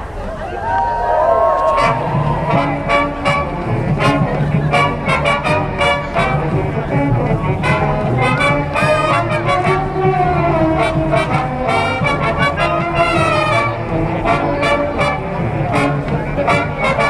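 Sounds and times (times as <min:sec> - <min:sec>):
brass band playing: 0:01.6 - 0:17.0.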